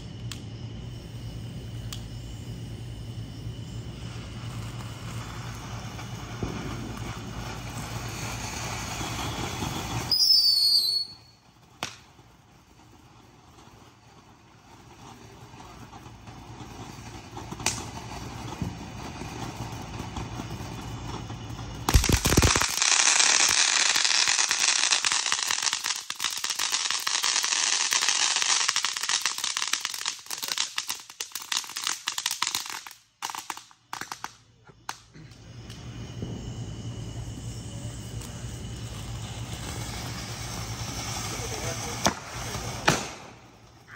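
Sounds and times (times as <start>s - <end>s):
firework hissing: 0.0s - 43.9s
firework bang: 3.9s - 12.9s, 13.5s - 25.1s, 34.8s - 43.9s.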